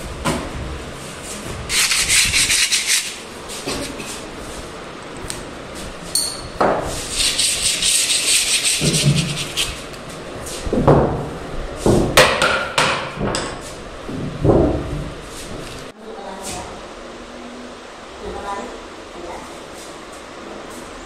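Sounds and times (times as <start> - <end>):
sanding block rasping on wood: 1.7 - 3.2, 7.0 - 9.9.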